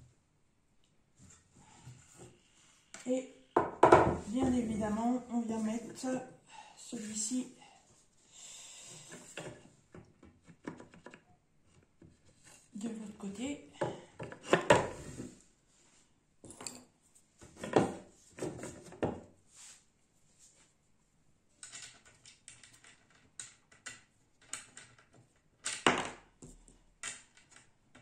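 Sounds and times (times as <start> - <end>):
wooden frame parts knocking: 3.6 - 4.7.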